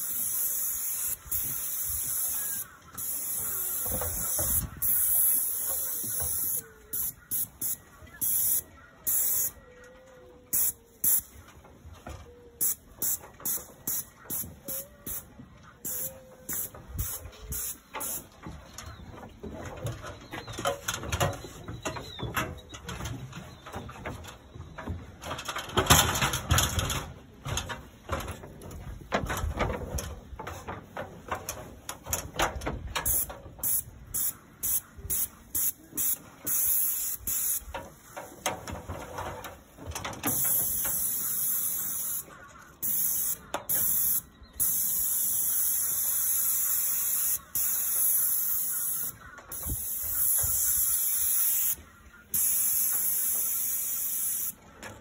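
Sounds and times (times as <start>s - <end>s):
paint sprayer hissing in bursts: 0.0s - 9.6s, 10.5s - 11.4s, 12.6s - 18.3s, 33.0s - 37.6s, 40.3s - 54.6s.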